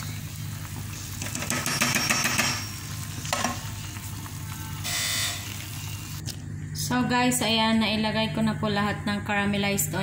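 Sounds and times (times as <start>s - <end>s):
oil sizzling: 0.0s - 6.5s.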